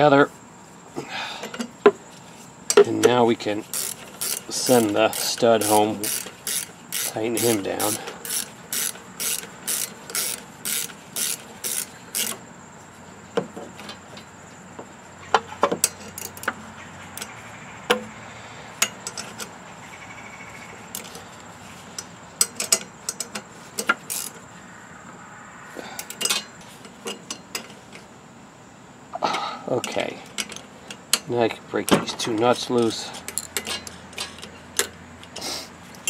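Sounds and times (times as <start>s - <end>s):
tools tapping on metal: 2.7s - 3.2s, 15.3s - 16.6s, 18.8s - 19.5s, 21.9s - 24.4s, 26.0s - 28.1s, 29.8s - 36.0s
ratchet wrench clicking: 3.6s - 12.4s, 22.0s - 24.4s.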